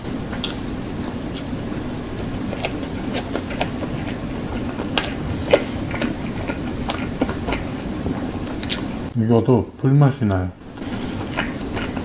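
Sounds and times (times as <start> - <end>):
wet chewing mouth clicks: 2.2 - 9.1, 10.8 - 12.0.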